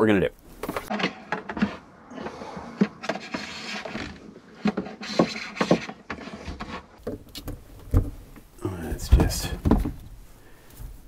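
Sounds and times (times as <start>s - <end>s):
cable rubbing and scraping: 0.7s - 7.0s.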